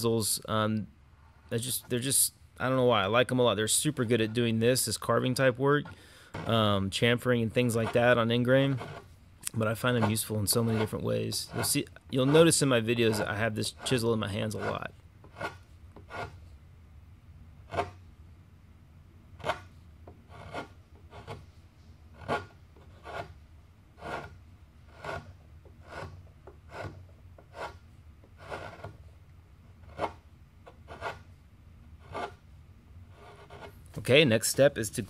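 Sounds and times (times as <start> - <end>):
chisel paring wood: 8.7 - 9.0, 14.6 - 16.3, 17.7 - 18.0, 19.4 - 21.4, 22.2 - 23.4, 24.0 - 29.0, 29.8 - 31.2, 32.0 - 32.4.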